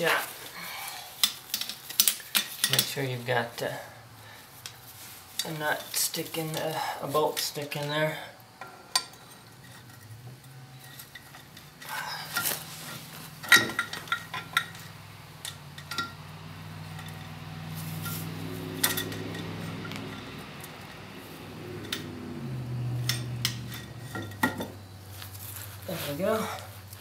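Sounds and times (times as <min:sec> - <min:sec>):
steady low hum: 0:00.0 - 0:27.0
metal clinks and knocks: 0:01.2 - 0:03.0, 0:08.6 - 0:21.0, 0:21.7 - 0:25.3.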